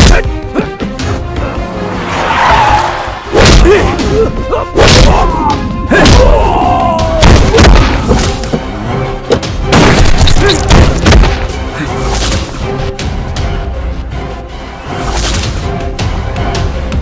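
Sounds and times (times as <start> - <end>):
dramatic background music: 0.0 - 17.0
punch and body-hit thuds: 7.2 - 8.4.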